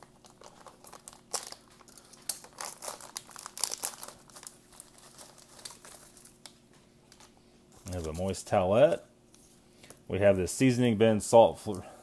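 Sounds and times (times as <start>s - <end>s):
plastic pack crinkling: 0.0s - 8.3s.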